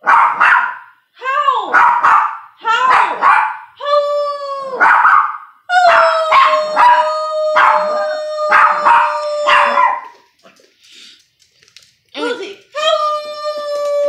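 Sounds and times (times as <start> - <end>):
dog yipping barks: 0.0 - 0.9, 1.7 - 3.7, 4.8 - 5.5, 8.5 - 10.2
small dog howling: 5.7 - 10.1.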